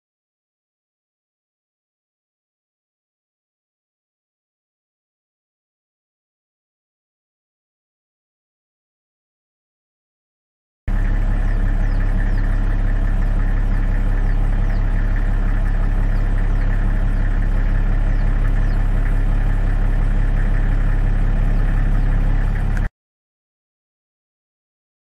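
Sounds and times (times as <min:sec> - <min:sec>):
vehicle engine idling: 0:10.9 - 0:22.9.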